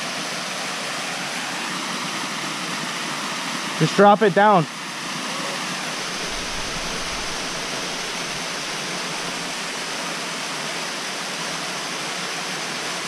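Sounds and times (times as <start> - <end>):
waterfall rushing: 4.9 - 13.0.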